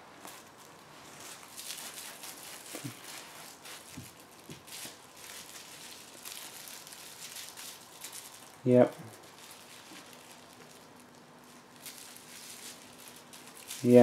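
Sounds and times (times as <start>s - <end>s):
kitten rustling on carpet: 0.2s - 6.8s.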